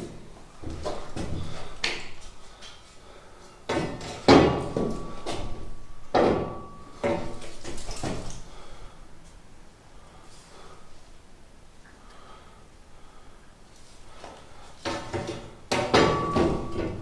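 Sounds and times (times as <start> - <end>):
metal clanks ringing: 3.9 - 8.2, 15.8 - 17.0.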